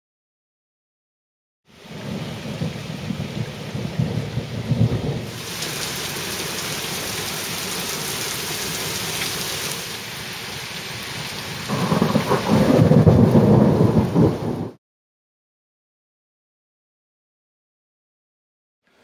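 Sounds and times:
thunder rumbling: 0:01.8 - 0:08.6, 0:11.7 - 0:14.8
heavy rain hissing: 0:05.2 - 0:14.6.

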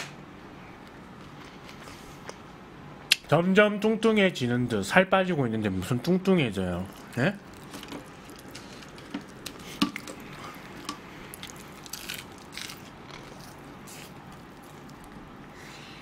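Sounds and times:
man chewing crispy food: 0:06.8 - 0:15.5.

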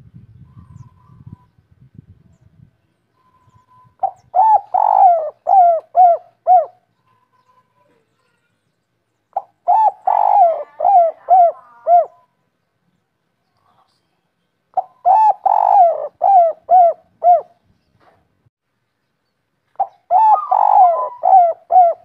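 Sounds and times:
dove cooing: 0:04.0 - 0:06.9, 0:09.3 - 0:12.3, 0:14.8 - 0:17.6, 0:19.8 - 0:22.0.

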